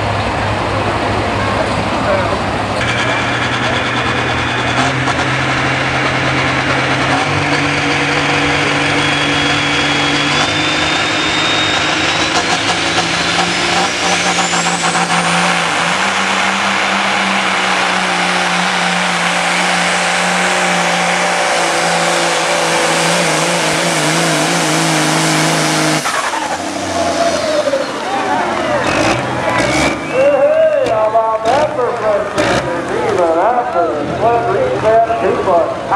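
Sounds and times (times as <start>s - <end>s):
truck diesel engine at full throttle: 0.0s - 35.9s
high whistle climbing in pitch: 8.9s - 21.3s.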